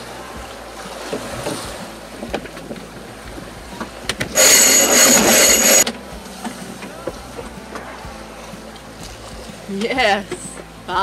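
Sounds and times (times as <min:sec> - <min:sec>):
wind and water hiss: 0:00.0 - 0:11.0
sailboat winch ratcheting: 0:04.1 - 0:06.9.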